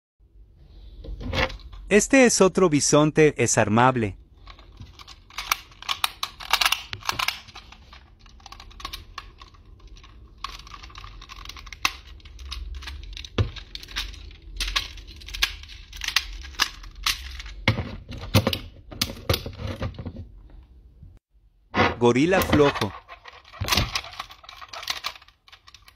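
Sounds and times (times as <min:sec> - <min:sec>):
plastic toy parts clicking: 0:04.4 - 0:17.6, 0:22.4 - 0:25.9.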